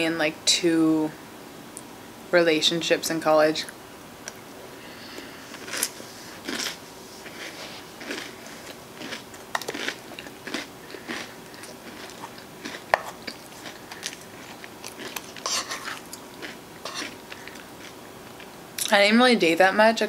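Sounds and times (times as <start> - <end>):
chewing and smacking: 5.6 - 18.5.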